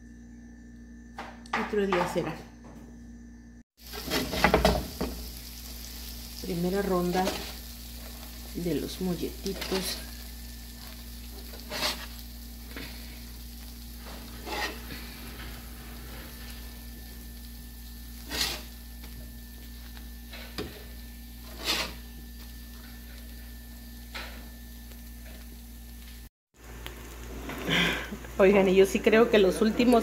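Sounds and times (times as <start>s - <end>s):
bread sizzling on griddle: 3.8s - 30.0s
metal spatula scraping griddle: 11.4s - 12.2s, 14.0s - 16.8s, 18.2s - 18.8s, 21.4s - 22.1s.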